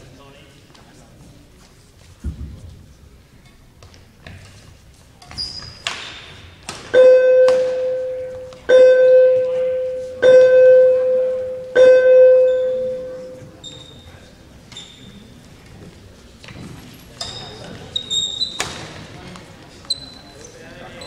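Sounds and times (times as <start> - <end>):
loud pitched tone: 7.0 - 13.4
faint high beeps: 7.0 - 14.2.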